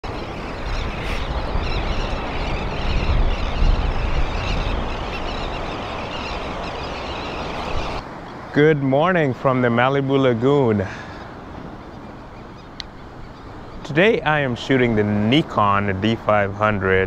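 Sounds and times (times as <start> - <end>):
wind on microphone: 0.0 - 8.5
ocean surf: 0.0 - 17.0.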